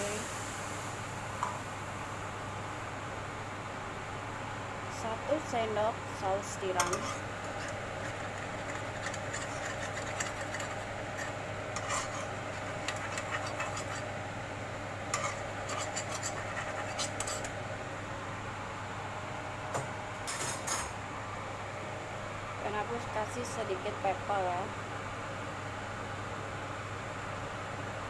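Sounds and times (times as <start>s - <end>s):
steady low hum: 0.0s - 28.0s
utensils scraping a wok: 6.6s - 14.2s, 15.1s - 17.6s.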